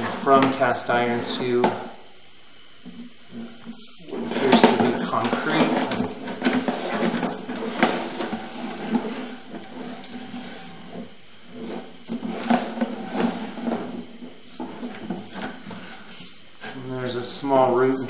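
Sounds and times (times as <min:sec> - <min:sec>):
cable sliding and rattling: 0:02.8 - 0:16.8.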